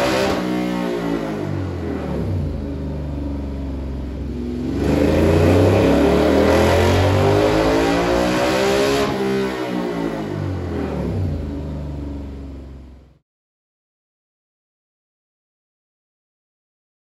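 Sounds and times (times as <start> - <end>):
motorcycle engine revving on dyno: 0.0 - 12.1.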